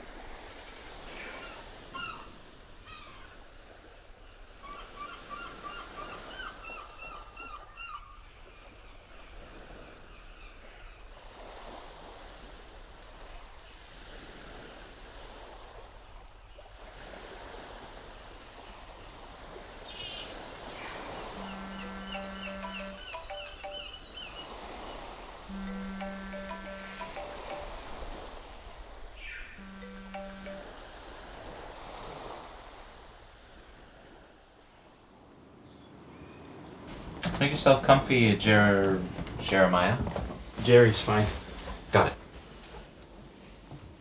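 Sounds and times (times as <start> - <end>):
small waves on rocky shore: 0.0 - 23.3, 23.9 - 25.6, 30.6 - 36.1
small birds chirping: 19.8 - 26.0
steady low tone: 25.5 - 27.8, 29.5 - 30.9.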